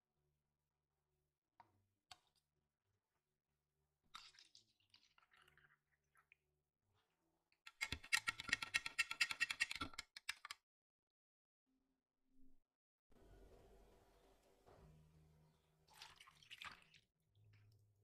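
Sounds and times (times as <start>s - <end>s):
milk pouring into glass: 15.9s - 17.7s.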